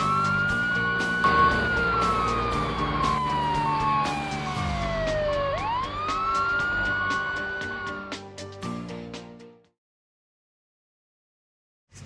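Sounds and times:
police siren wail: 0.0s - 8.3s
background music with steady beat: 0.0s - 9.7s.

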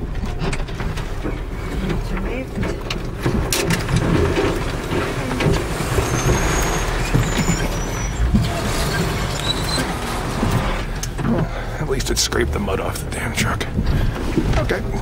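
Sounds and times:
truck engine under load: 0.0s - 15.0s
branches scraping vehicle body: 0.3s - 12.7s
short high squeaks: 5.8s - 10.3s.

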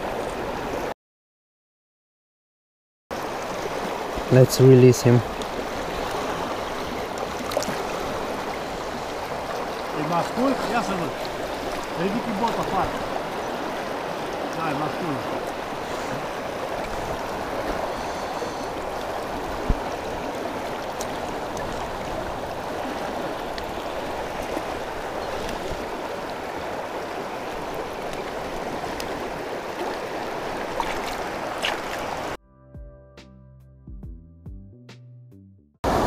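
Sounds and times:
river current rushing: 0.0s - 0.9s, 3.1s - 32.4s
fish splashing in water: 5.5s - 10.0s, 15.5s - 32.3s.

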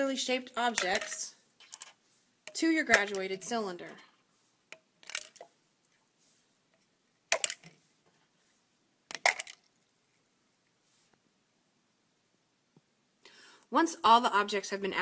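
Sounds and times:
marbles splashing into water: 9.1s - 9.7s.

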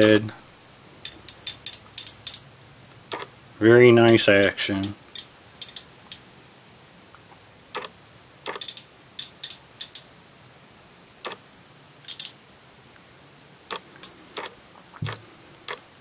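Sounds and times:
ratchet clicking: 1.0s - 2.4s, 4.8s - 5.9s, 8.5s - 10.1s, 12.1s - 12.4s.

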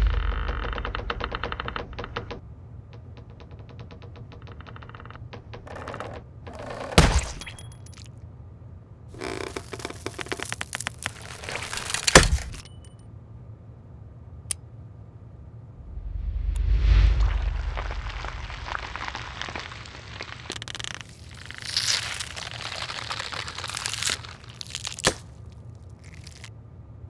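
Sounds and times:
crackling crunch: 9.1s - 12.7s, 17.2s - 26.5s
cutter creaking clicks: 9.2s - 12.6s.

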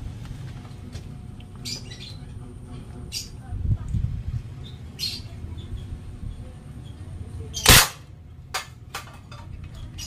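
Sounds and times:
toy gun shot: 7.6s - 8.7s.

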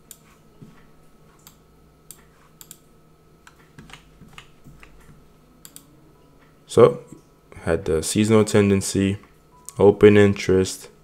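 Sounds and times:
low steady hum: 0.0s - 11.0s
computer keys clicking: 1.4s - 2.8s, 3.4s - 5.9s.

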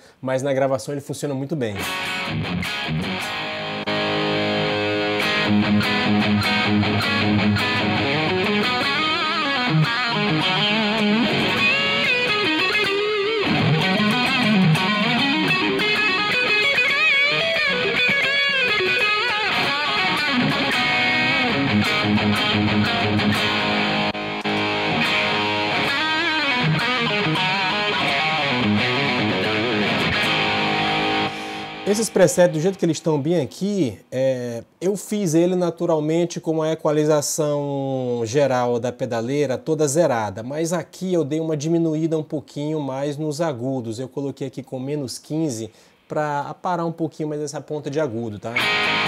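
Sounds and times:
distorted electric guitar: 1.8s - 32.8s, 48.5s - 49.0s.

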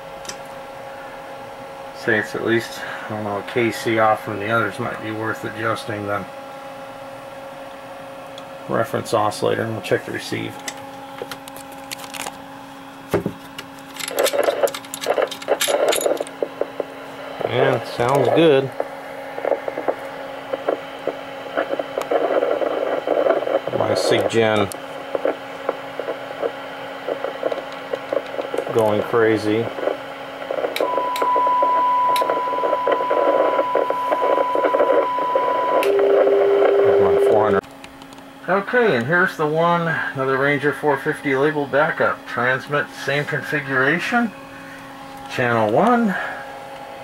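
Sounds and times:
steady low hum: 0.0s - 47.0s
metallic clicks and rattling: 13.7s - 16.4s
steady lower tone: 14.0s - 37.6s
radio crackly bursts: 14.1s - 37.6s.

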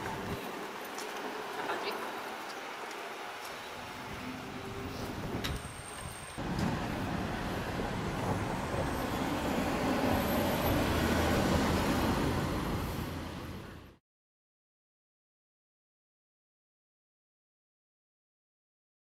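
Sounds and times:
street background: 0.0s - 14.0s
minivan driving past: 6.4s - 14.0s.

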